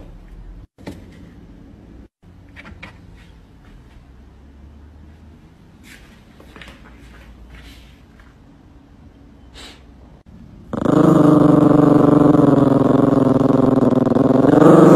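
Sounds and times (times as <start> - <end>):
dog growling: 10.7 - 14.9.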